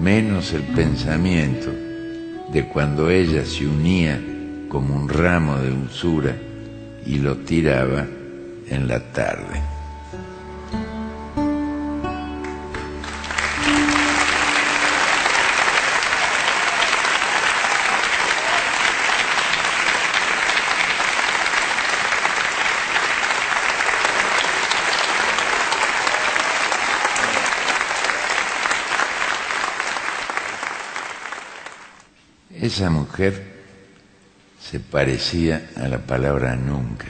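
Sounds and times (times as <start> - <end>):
audience applauding: 12.4 - 32.1
held musical note: 13.0 - 17.4.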